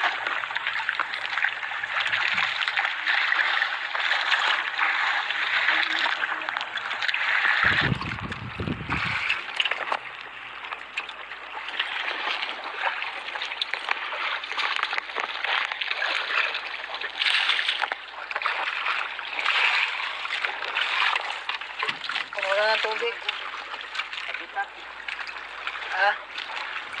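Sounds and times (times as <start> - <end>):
water sloshing and splashing: 0.0 - 27.0
low rumble: 7.6 - 9.6.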